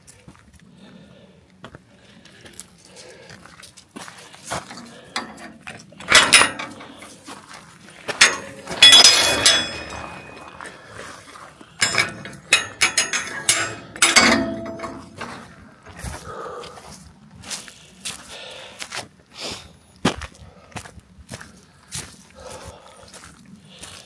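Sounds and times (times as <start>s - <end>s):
metal ringing tone: 5.2s - 7.0s, 8.1s - 10.7s, 11.8s - 15.5s
hard objects knocking and clinking: 8.1s - 10.7s, 11.8s - 15.4s.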